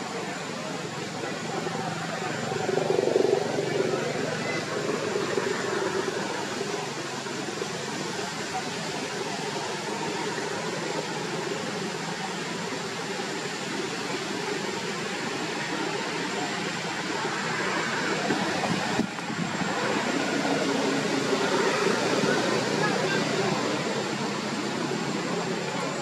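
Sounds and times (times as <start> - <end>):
constant outdoor hiss: 0.0 - 26.0.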